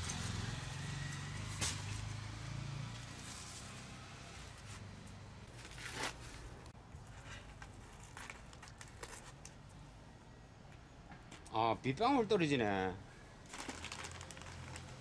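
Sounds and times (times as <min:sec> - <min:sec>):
paper sack crinkling and tearing: 0:05.5 - 0:09.4, 0:13.4 - 0:15.0.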